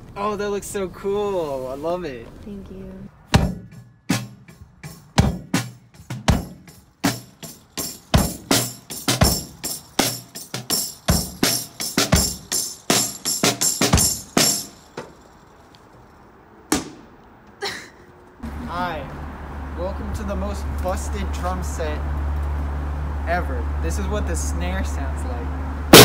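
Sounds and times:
acoustic drum kit playing: 0:03.3 - 0:15.0.

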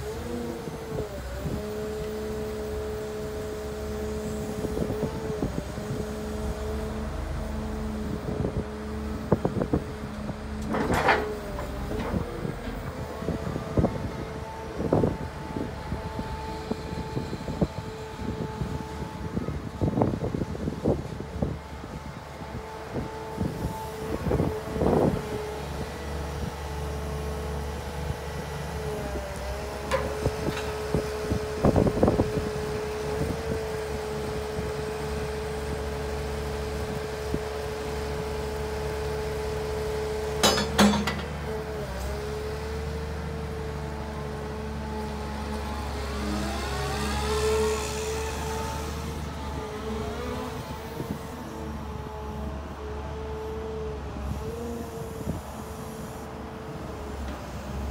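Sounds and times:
excavator diesel engine whine: 0:00.0 - 0:57.9
sharp metal clanks: 0:40.4 - 0:41.4.

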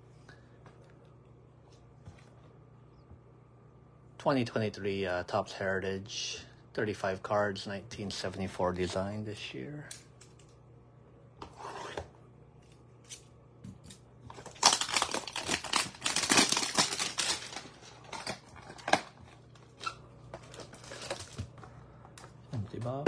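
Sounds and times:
packaging tearing and crackling: 0:14.3 - 0:21.5
packaging rustling and clicking: 0:14.3 - 0:21.6.

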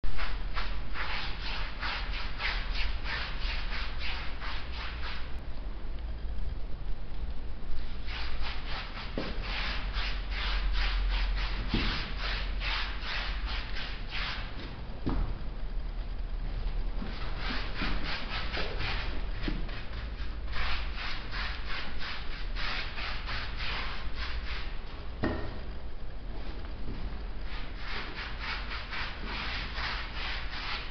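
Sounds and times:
brush rasping on textured wall: 0:08.1 - 0:14.5, 0:17.0 - 0:24.8, 0:27.4 - 0:30.9
hand tool rubbing gritty wall: 0:27.5 - 0:30.9.

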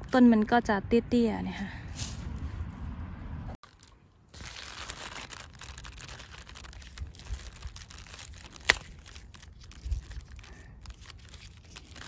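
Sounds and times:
sprout leaves rustling and crinkling: 0:03.6 - 0:12.0
stalk snapping: 0:03.8 - 0:12.0.

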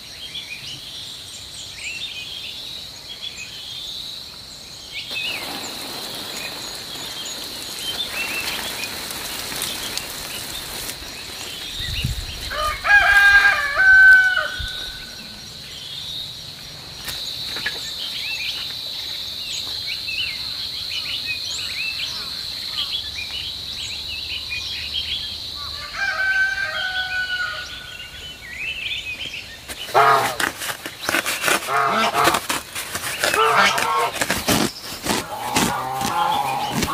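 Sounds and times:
small birds chirping: 0:00.0 - 0:12.8
rooster crowing: 0:12.4 - 0:15.2, 0:25.7 - 0:27.9.

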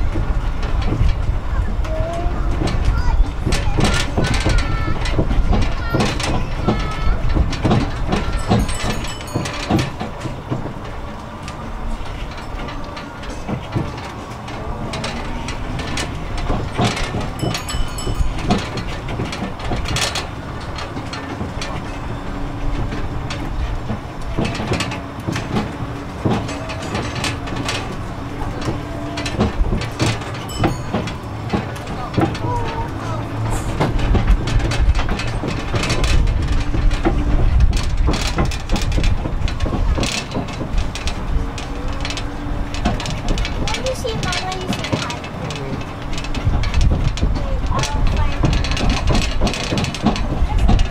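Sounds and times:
wagons rattling and knocking: 0:00.0 - 0:50.9.

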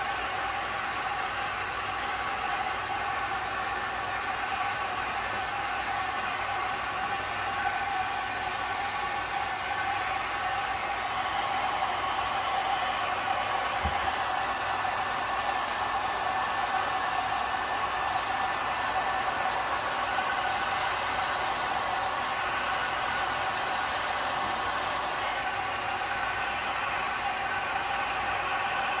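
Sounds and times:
heat gun blowing: 0:08.7 - 0:29.0.

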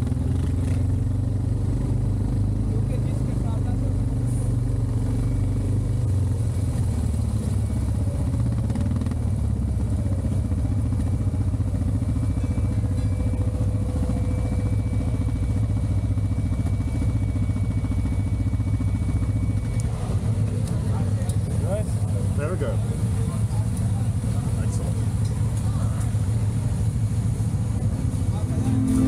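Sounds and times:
off-road vehicle engine running: 0:00.0 - 0:29.0
faint high whine: 0:28.1 - 0:29.0.

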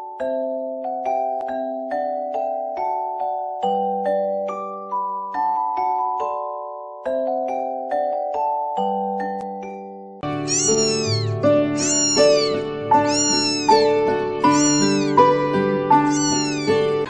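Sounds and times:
kitten mewing: 0:10.5 - 0:15.2, 0:16.0 - 0:17.0.

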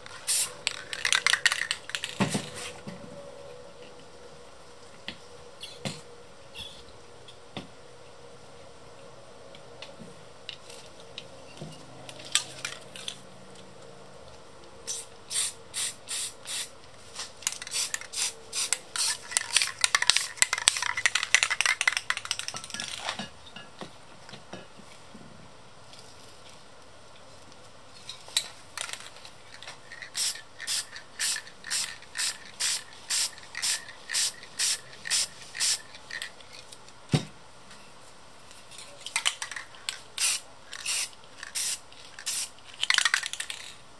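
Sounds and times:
spray paint can hissing: 0:00.1 - 0:02.7, 0:14.9 - 0:22.5, 0:30.0 - 0:35.9, 0:40.2 - 0:43.6.

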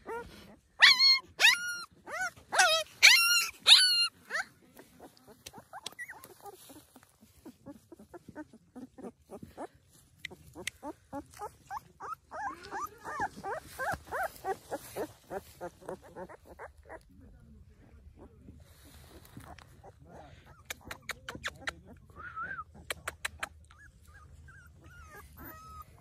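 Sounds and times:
puppies crying high squeaks: 0:00.8 - 0:04.4
puppy yelp: 0:00.8 - 0:04.5, 0:10.6 - 0:15.1, 0:23.5 - 0:26.0.

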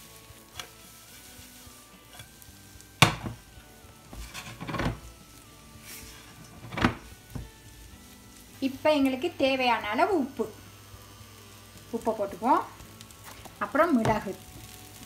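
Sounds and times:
spatula scraping a frying pan: 0:00.0 - 0:07.2
faint sizzle: 0:00.0 - 0:15.0.

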